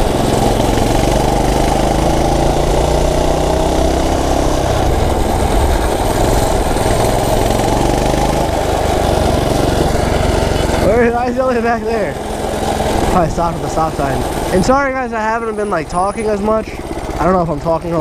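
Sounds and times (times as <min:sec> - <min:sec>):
small engine running: 0:00.0 - 0:18.0.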